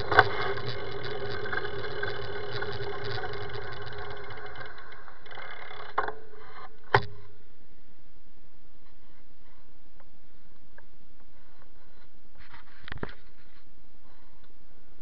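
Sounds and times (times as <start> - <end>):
low engine-like hum: 0.0 - 6.5
bicycle riding noise: 0.0 - 6.6.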